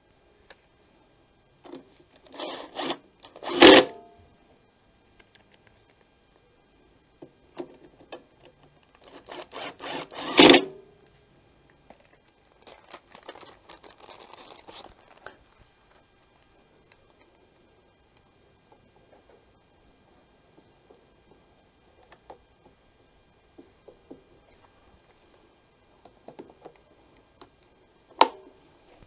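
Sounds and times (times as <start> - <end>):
cordless driver driving screws: 2.3 - 3.9, 9.0 - 10.7
plastic bag rustling: 12.5 - 15.6.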